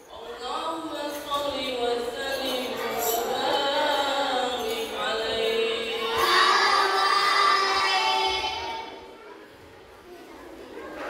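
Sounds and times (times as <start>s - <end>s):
children singing together: 3.0s - 9.1s.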